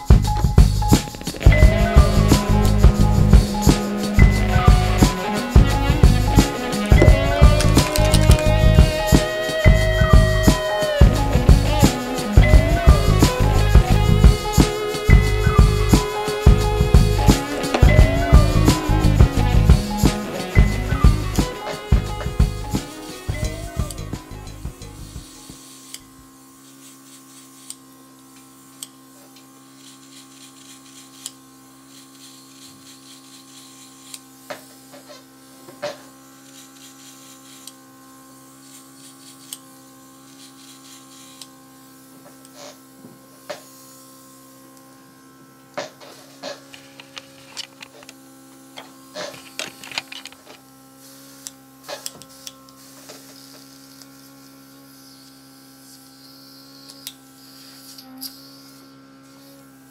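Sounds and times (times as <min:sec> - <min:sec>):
compressor humming: 0:00.0 - 0:25.5
airbrush spraying hiss: 0:00.0 - 0:47.5, 0:50.8 - 0:59.8.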